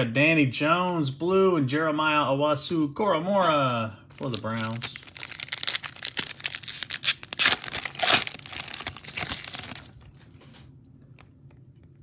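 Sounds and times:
foil wrapper tearing and crinkling: 0:04.2 - 0:10.2.

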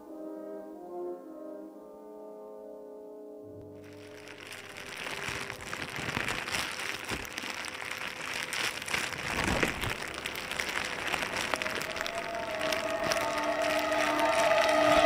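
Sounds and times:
fire crackling and popping: 0:03.7 - 0:15.0.

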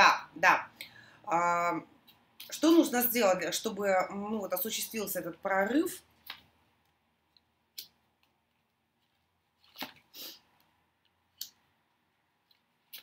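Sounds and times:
cards shuffling: 0:08.2 - 0:10.7.

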